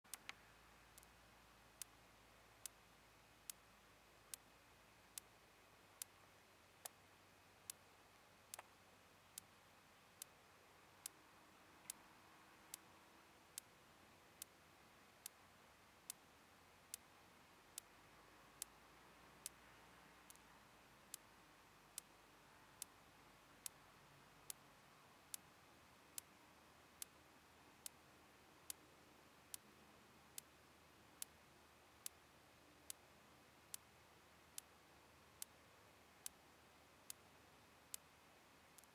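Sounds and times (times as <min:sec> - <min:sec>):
faint sharp tick: 0:00.1 - 0:01.2, 0:08.5 - 0:09.5, 0:11.8 - 0:12.9, 0:18.6 - 0:18.8, 0:19.4 - 0:19.6, 0:20.2 - 0:21.3, 0:31.2 - 0:31.4, 0:32.0 - 0:32.2, 0:35.4 - 0:35.6, 0:37.0 - 0:37.2, 0:37.9 - 0:38.1.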